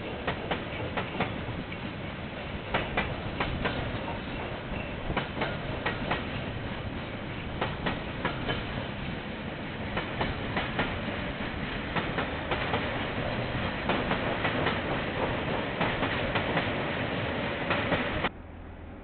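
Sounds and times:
train wheels clacking over rail joints: 0.0s - 1.9s, 2.7s - 18.3s
train rumble: 0.0s - 19.0s.

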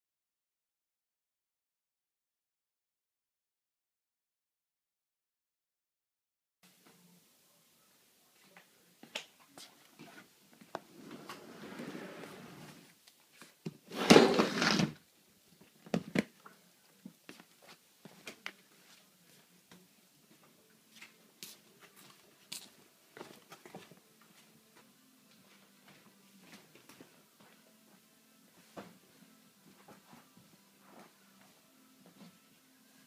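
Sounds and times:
footsteps on a tiled floor: 8.4s - 14.9s, 17.0s - 32.4s.

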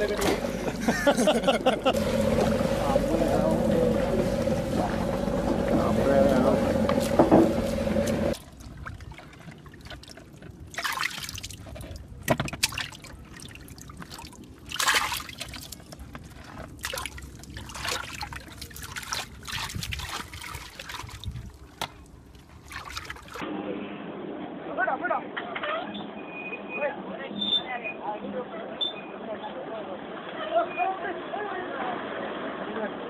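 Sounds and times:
voices: 0.0s - 8.3s
boat engine: 0.0s - 8.6s
water splashing in mud: 7.0s - 23.4s.

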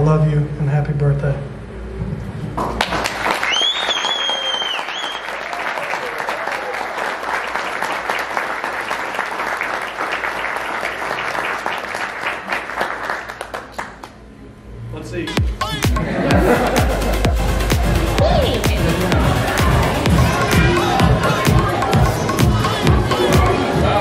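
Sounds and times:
people applauding: 2.8s - 14.3s
shrill whistle: 3.4s - 5.4s.

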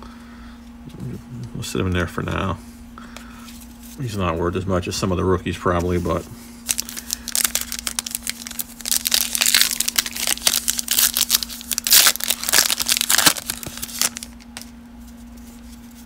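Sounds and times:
foil wrapper crinkling and tearing: 6.1s - 14.7s.

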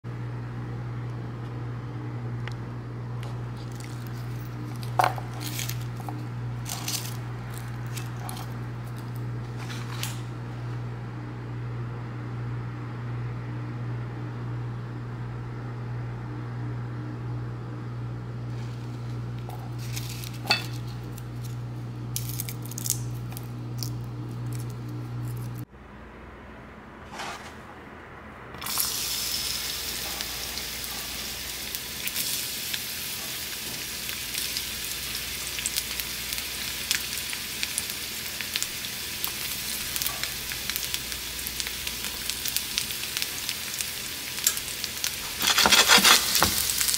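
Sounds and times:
steady low hum: 0.0s - 46.9s
dishes and utensils clinking: 19.5s - 21.0s.

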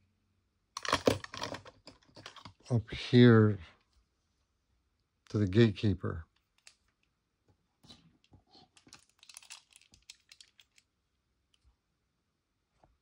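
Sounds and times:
toy cars clicking and rattling: 8.8s - 10.9s.

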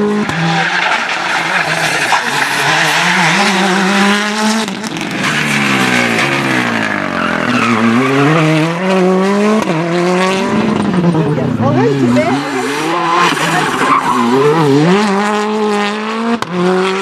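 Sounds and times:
rally car engine at speed: 0.0s - 17.0s.

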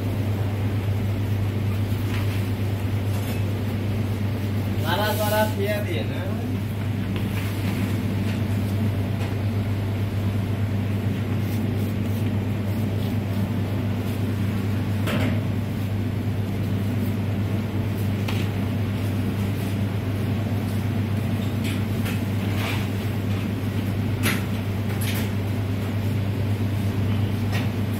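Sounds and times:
kitchen equipment humming: 0.0s - 27.9s.

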